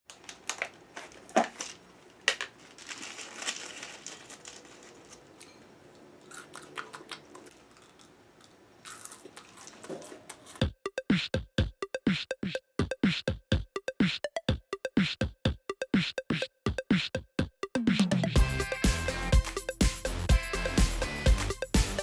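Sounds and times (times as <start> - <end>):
packet crinkling and clicking: 0.1 - 5.5
person chewing and crunching food: 6.2 - 10.6.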